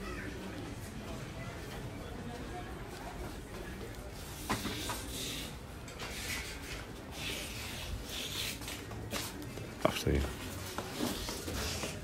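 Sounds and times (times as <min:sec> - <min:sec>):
footsteps rustling and scuffing: 0:06.0 - 0:12.0.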